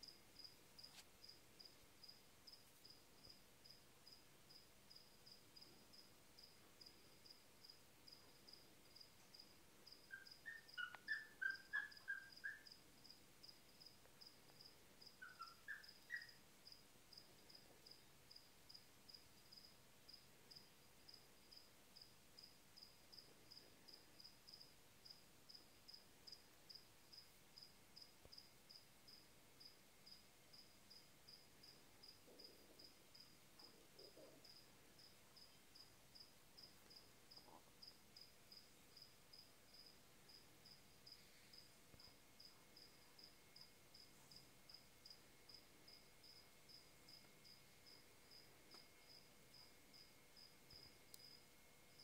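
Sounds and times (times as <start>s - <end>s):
cricket chirping: 0.0s - 52.0s
lower twittering chirps: 9.9s - 12.8s, 15.0s - 16.4s.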